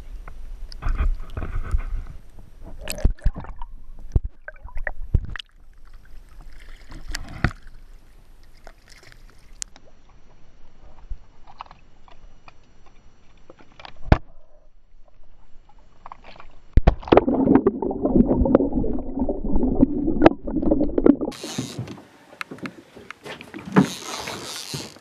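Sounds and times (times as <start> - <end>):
seawater sloshing and gurgling: 16.0 - 21.8.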